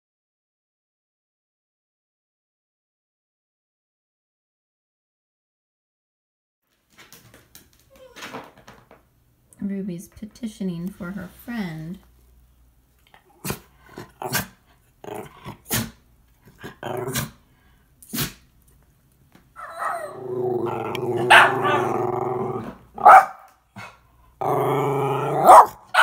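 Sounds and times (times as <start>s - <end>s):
dog growling: 13.1s - 17.4s, 19.6s - 23.2s, 23.8s - 26.0s
dogs barking: 19.6s - 24.0s, 25.2s - 26.0s.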